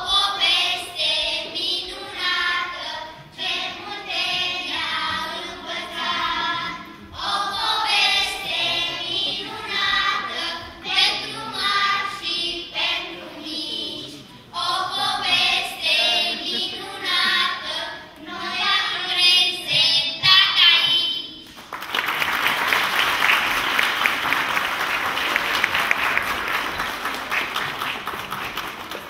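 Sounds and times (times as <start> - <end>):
children singing together: 0.0 - 21.4
audience applause: 21.6 - 29.0.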